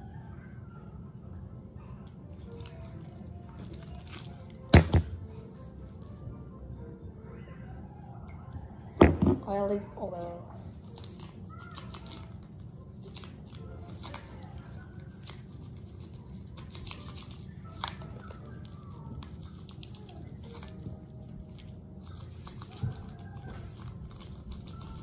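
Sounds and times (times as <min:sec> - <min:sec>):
seasoning pattering on meat: 0:10.8 - 0:25.0.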